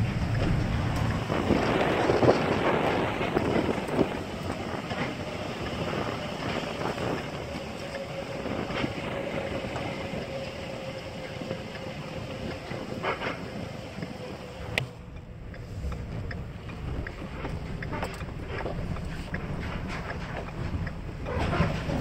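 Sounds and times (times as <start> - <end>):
truck engine and road noise: 0.0 - 22.0.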